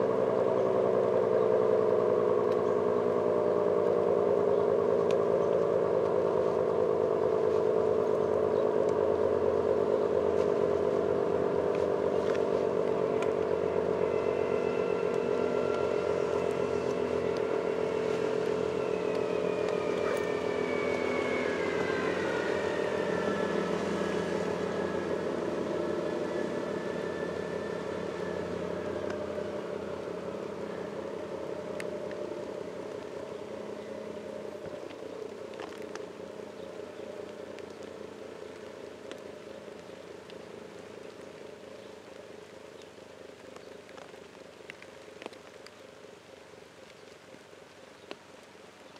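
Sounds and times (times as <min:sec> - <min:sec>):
rotating siren two-tone chord: 0:13.6 - 0:32.8.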